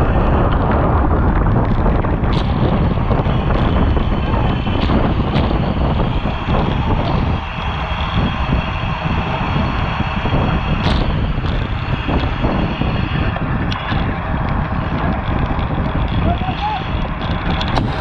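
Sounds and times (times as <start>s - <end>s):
tyre and road noise: 0.0s - 18.0s
wind buffeting a camera: 0.0s - 18.0s.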